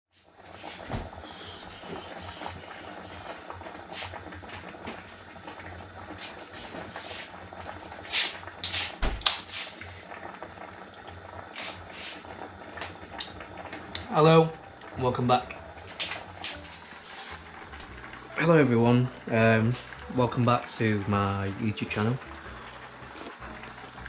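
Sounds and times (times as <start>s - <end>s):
drinks can opening clicks and hiss: 8.1s - 10.0s, 12.8s - 14.2s, 23.0s - 23.5s
low steady hum: 12.6s - 24.0s.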